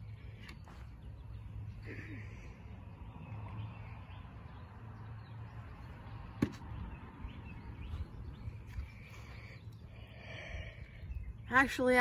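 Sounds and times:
wind rumble on microphone: 5.8s - 12.0s.

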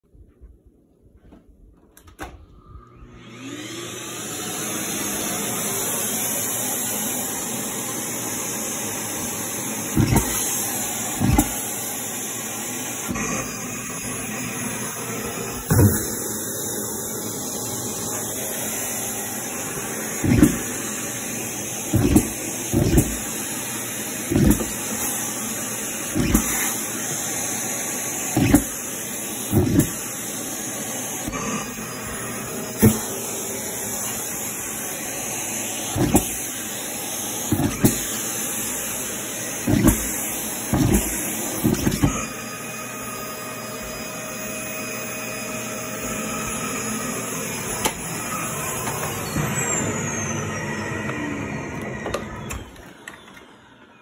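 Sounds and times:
vacuum cleaner running: 2.1s - 54.0s.

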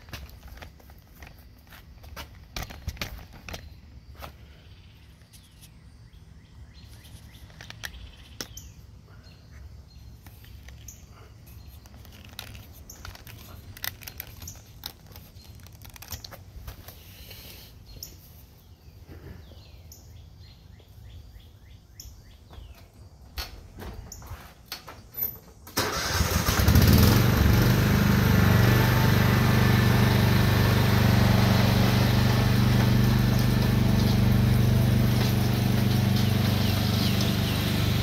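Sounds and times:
birds chirping and calling: 33.3s - 38.0s.

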